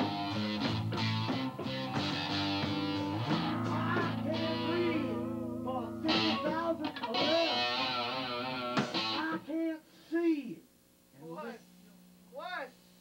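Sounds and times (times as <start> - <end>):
electric guitar: 0.0 - 9.4
rock band playing: 0.0 - 9.4.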